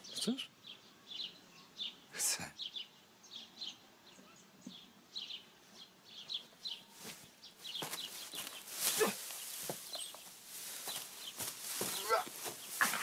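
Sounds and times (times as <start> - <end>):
small birds chirping: 0.0 - 13.0
rustling of dry hay: 6.8 - 13.0.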